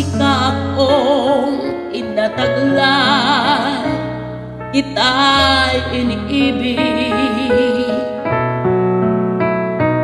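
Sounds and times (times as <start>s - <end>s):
woman singing with vibrato: 0.0s - 4.1s, 4.8s - 8.3s
keyboard backing track: 0.0s - 10.0s.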